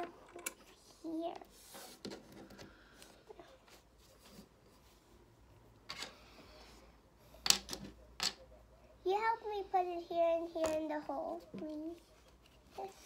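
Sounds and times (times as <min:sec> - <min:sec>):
plastic toy pieces clicking on table: 0:07.4 - 0:08.4.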